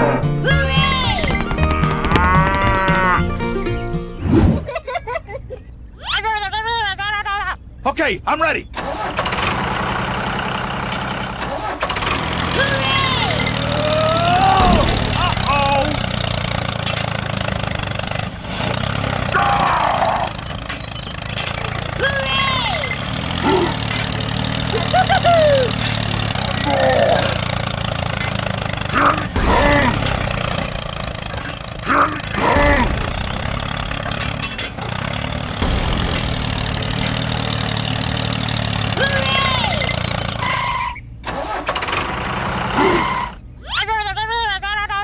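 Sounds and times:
tractor engine idling: 7.6 - 43.6.

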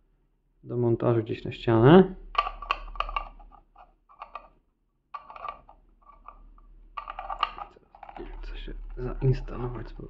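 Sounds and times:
plastic clicks and rattles: 2.3 - 4.6, 5.2 - 9.0.

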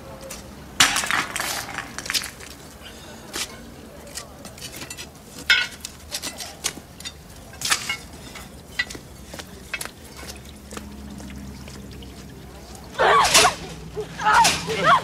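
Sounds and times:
objects clinking and scraping: 3.3 - 10.4.

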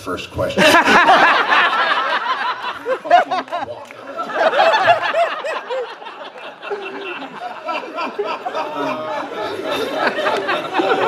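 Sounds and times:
audience laughing: 0.6 - 11.0.

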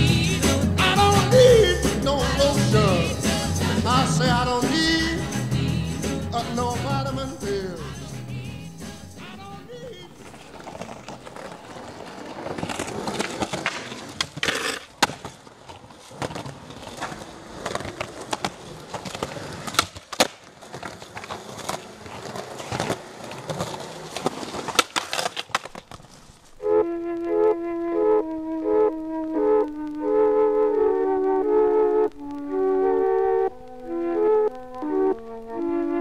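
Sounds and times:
flute music: 0.0 - 10.5, 26.6 - 36.0
skateboard wheels rolling on concrete: 0.0 - 36.0
skateboards clacking on ground: 8.9 - 26.6.

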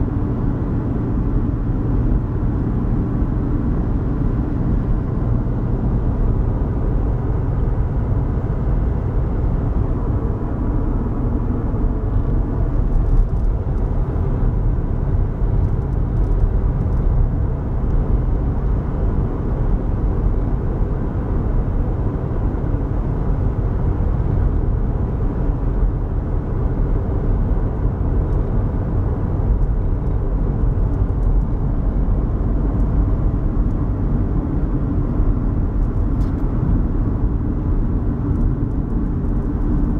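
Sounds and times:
car road rumble from cabin: 0.0 - 39.9.

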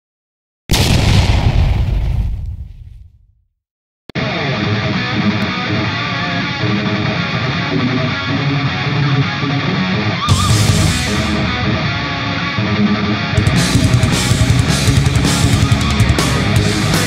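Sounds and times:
guitar rock music: 4.2 - 17.0.

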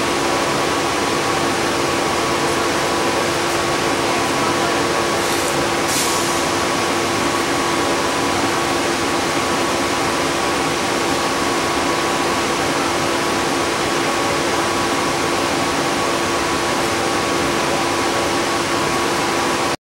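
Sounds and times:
bus interior hiss: 3.2 - 6.7.

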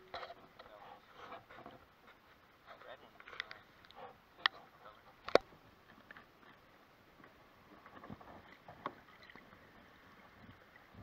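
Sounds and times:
water splashing: 7.7 - 11.0.

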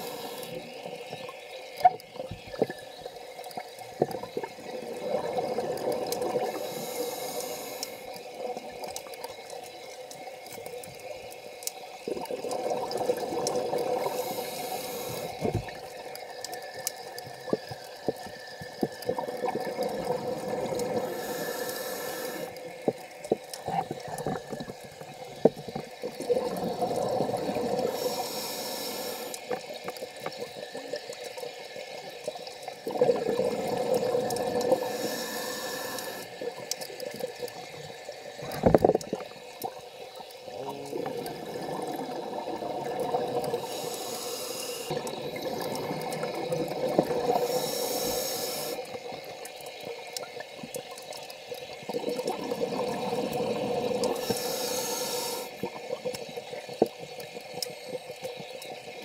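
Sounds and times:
diver breathing through regulator: 6.4 - 8.1, 14.0 - 15.4, 21.0 - 22.6, 27.8 - 29.4, 34.6 - 36.3, 43.5 - 46.0, 47.3 - 48.8, 54.0 - 55.6.

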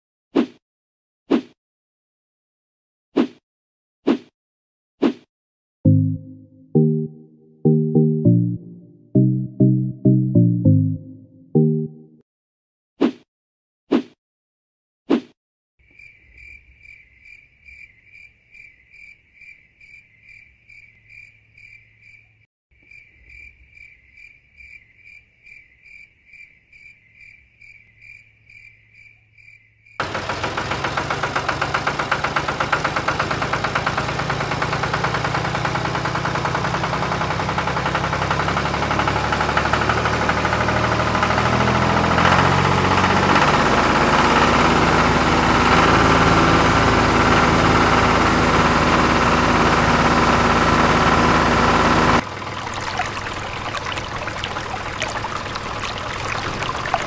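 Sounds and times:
cricket chirping: 15.8 - 30.0.

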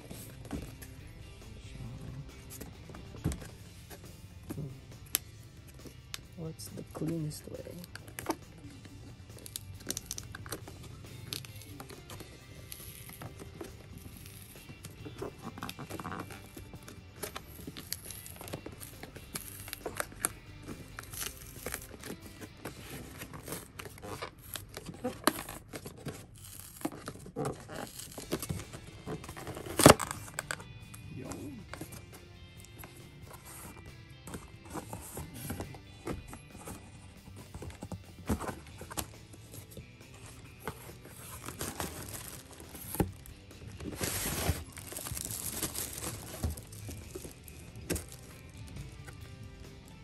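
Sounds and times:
packaging tearing and crinkling: 11.3 - 30.6, 37.5 - 49.1.

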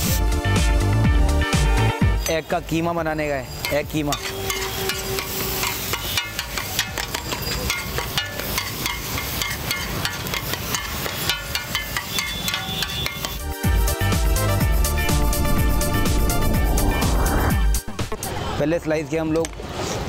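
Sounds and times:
metal spatula chopping on griddle: 3.5 - 13.4.

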